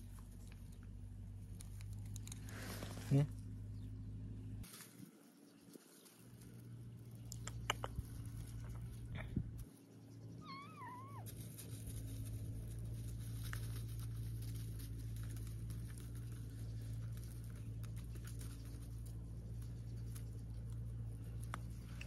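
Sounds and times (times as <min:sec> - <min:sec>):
steady low hum: 0:00.0 - 0:22.0
rustling in dry straw: 0:01.6 - 0:03.3, 0:04.6 - 0:07.3, 0:08.0 - 0:22.0
kitten meowing: 0:10.4 - 0:11.3.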